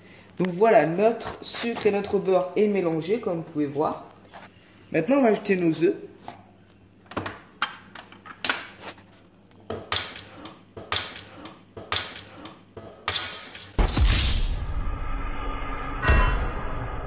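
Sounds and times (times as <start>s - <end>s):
loud low rumble: 14.0s - 17.0s.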